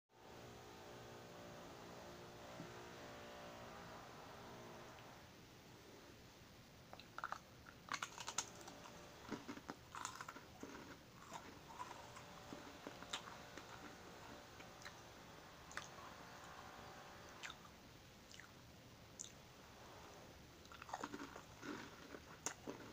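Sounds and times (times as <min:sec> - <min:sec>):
biscuit crunching: 0:06.9 - 0:15.0, 0:20.6 - 0:22.9.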